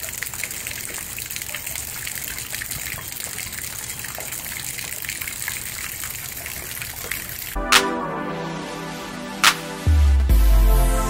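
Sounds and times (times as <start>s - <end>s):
heavy rain on water surface: 0.0s - 7.6s
runoff water pouring into pond: 0.0s - 7.6s.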